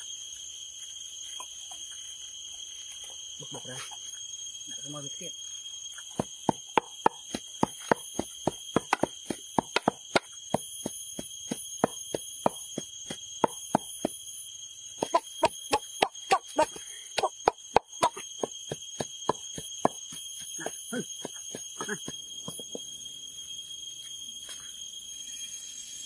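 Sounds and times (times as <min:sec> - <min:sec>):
steady high-pitched whine: 0:00.0 - 0:26.0
cleaver chopping on wooden board: 0:06.2 - 0:14.2, 0:15.0 - 0:20.2
pestle pounding in wooden mortar: 0:06.2 - 0:14.2, 0:15.0 - 0:22.8.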